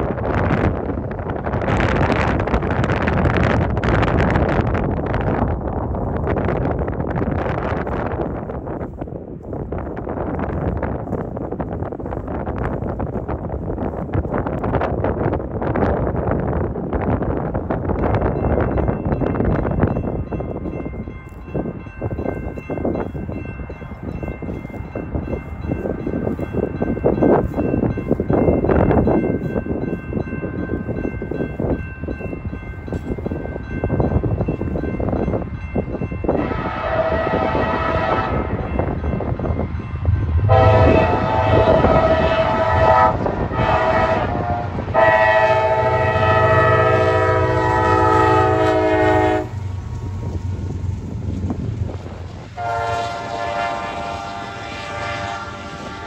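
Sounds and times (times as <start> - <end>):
low rumble of passing train: 0.0 - 56.0
wind buffeting microphone: 0.0 - 56.0
distant locomotive horn: 36.3 - 38.8, 40.1 - 50.4, 52.5 - 56.0.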